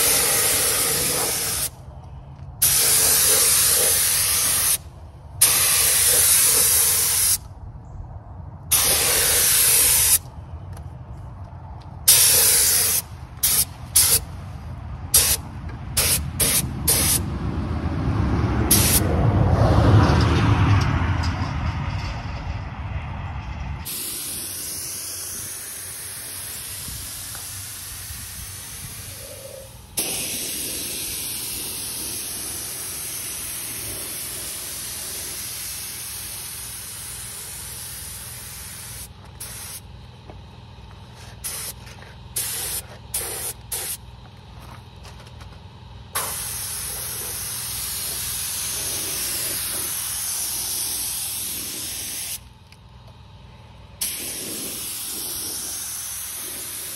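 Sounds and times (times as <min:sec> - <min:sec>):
paint spray gun hissing: 0:00.0 - 0:01.8, 0:02.6 - 0:04.8, 0:05.4 - 0:07.4, 0:08.7 - 0:10.2, 0:12.1 - 0:14.2, 0:15.2 - 0:15.4, 0:16.0 - 0:17.2, 0:18.7 - 0:19.0, 0:23.9 - 0:39.9, 0:41.3 - 0:41.8, 0:42.4 - 0:44.0, 0:46.2 - 0:52.5, 0:54.0 - 0:56.9.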